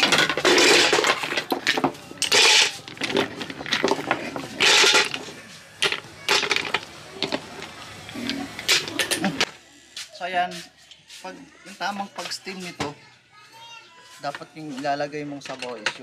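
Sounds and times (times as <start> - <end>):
shells clattering in metal pot: 0.0 - 7.3.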